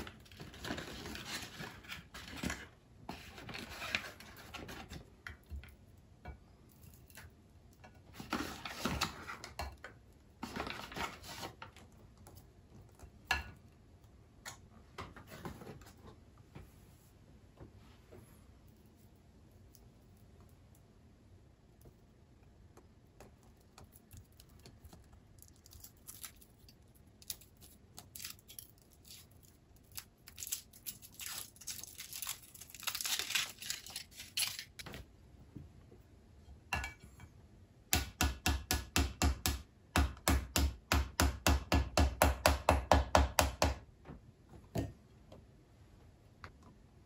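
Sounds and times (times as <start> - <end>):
foil wrapper crinkling and tearing: 25.4 - 34.9.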